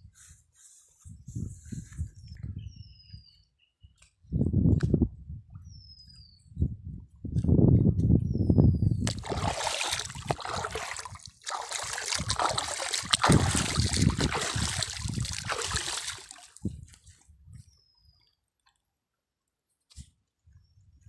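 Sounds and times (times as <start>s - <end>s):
water splashing and trickling: 9.0s - 17.0s.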